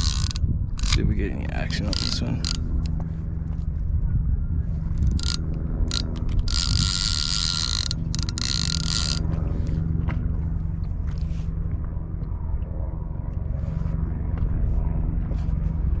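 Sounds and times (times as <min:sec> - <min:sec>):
fishing reel ratchet clicking: 0:00.0 - 0:03.0, 0:05.0 - 0:09.3
outboard motor running: 0:00.0 - 0:03.6, 0:04.6 - 0:14.4.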